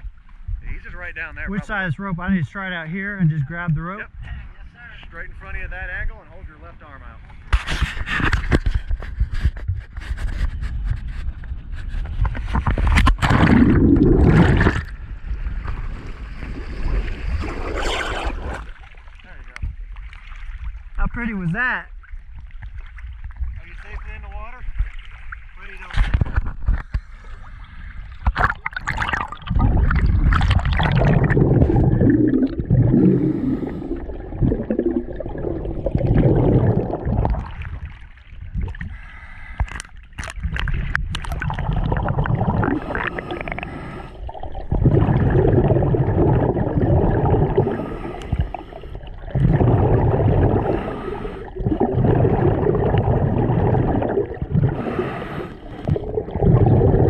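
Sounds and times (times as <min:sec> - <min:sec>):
water splashing: 0:12.4 - 0:57.0
gurgling exhaled bubbles: 0:12.6 - 0:18.9, 0:28.0 - 0:39.2, 0:40.2 - 0:57.0.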